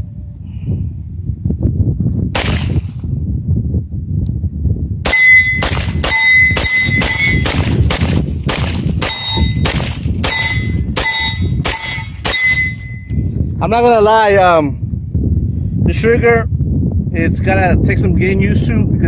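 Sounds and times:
wind rumble on microphone: 0.0s - 19.0s
pistol shots: 2.4s - 3.0s, 5.0s - 12.7s
metallic ring: 5.1s - 7.5s, 9.0s - 13.3s.

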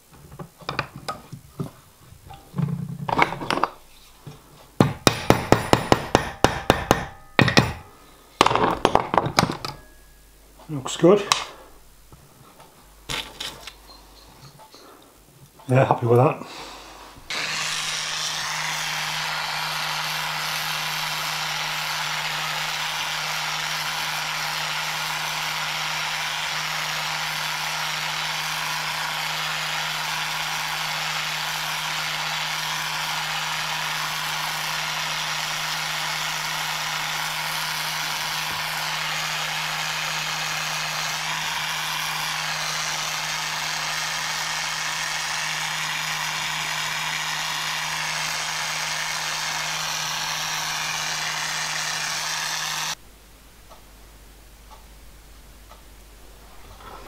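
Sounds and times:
blowtorch flame hissing: 16.5s - 53.0s.

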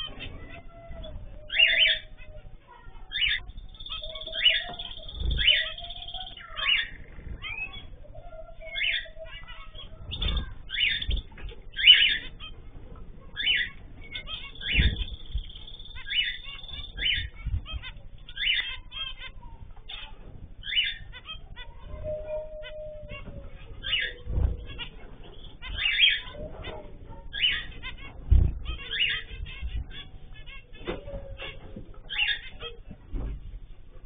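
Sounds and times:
finches beeping calls: 0.0s - 32.9s
low thumps: 28.1s - 32.0s.

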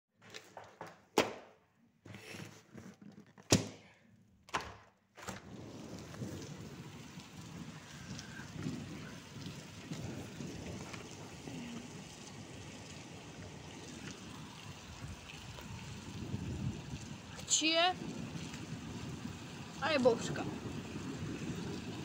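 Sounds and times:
rain hissing: 5.3s - 22.0s.

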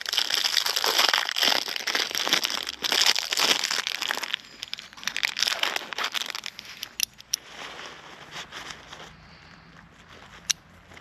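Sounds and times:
carabiner clicking: 6.3s - 7.4s.

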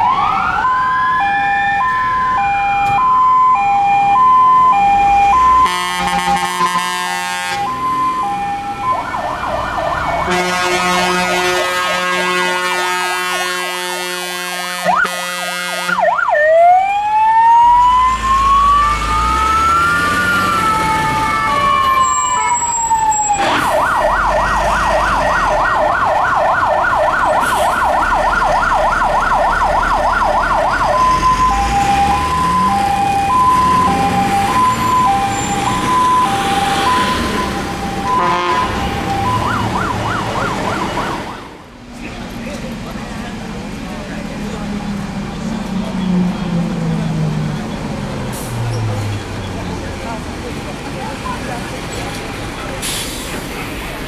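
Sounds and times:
emergency vehicle siren: 0.0s - 50.0s
low engine rumble: 41.6s - 54.0s.

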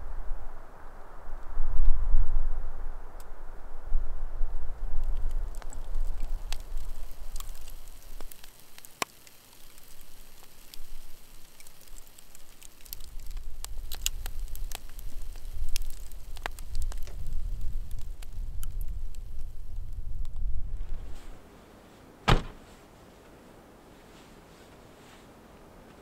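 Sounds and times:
campfire crackling and popping: 4.5s - 21.4s.

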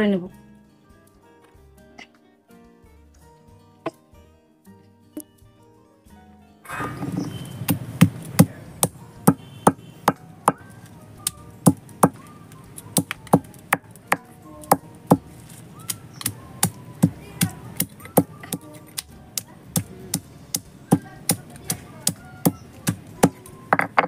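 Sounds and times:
stone roller pounding spices: 7.6s - 10.6s, 11.6s - 12.2s, 12.8s - 24.0s.

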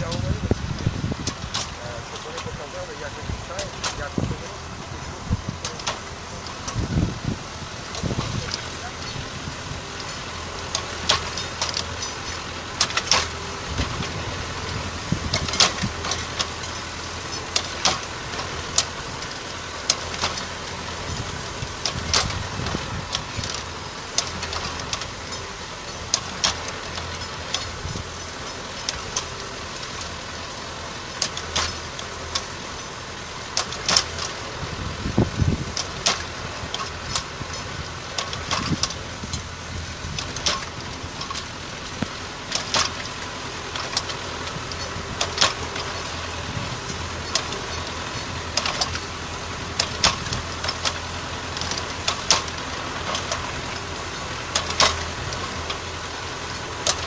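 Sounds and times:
tractor engine running: 0.0s - 57.0s
sharp ticks and knocks: 10.0s - 34.5s, 35.6s - 39.5s, 40.1s - 57.0s.

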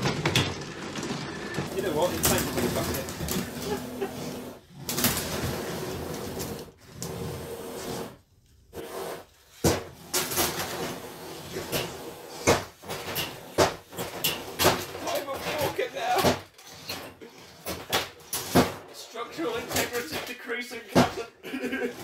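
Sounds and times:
plastic bricks clattering: 0.0s - 4.0s.

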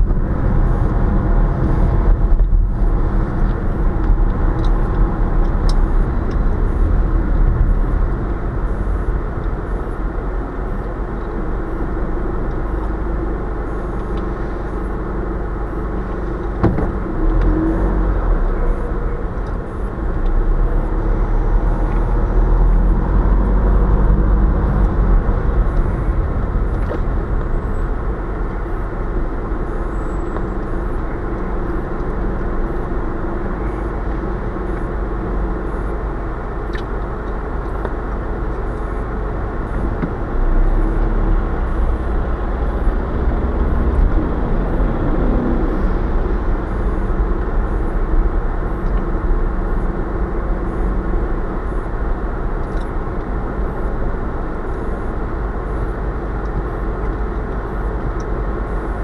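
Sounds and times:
car engine and road noise: 0.0s - 59.0s.

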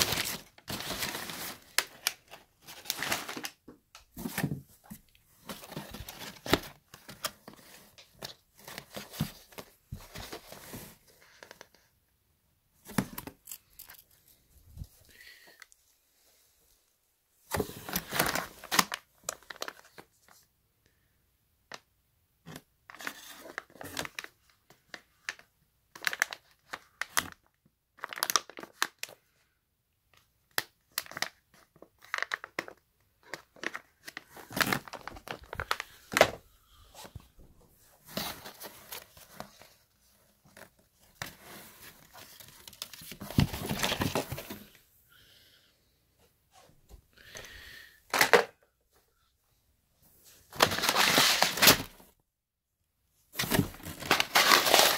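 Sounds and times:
plastic bags crinkling: 0.0s - 3.6s, 33.6s - 36.4s, 50.6s - 52.0s, 53.4s - 54.9s.

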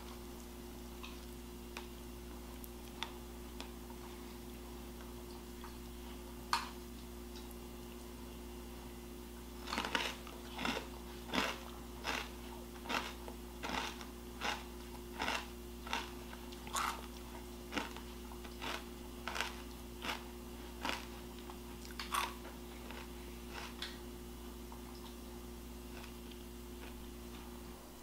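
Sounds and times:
person chewing crunchy food: 9.6s - 24.0s, 25.9s - 27.4s.

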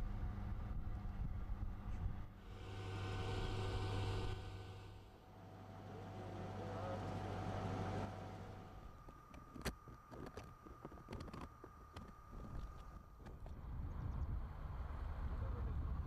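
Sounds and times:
motor hum: 0.0s - 16.0s.

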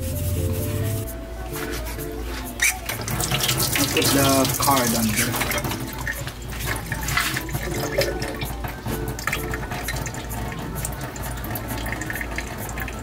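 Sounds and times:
water trickling at a sink: 2.5s - 13.0s
water dripping: 2.6s - 13.0s.

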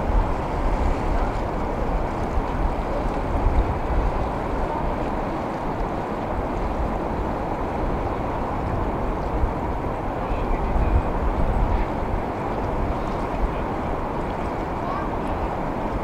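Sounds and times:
ocean water washing: 0.0s - 16.0s
wind buffeting the microphone: 0.0s - 16.0s.

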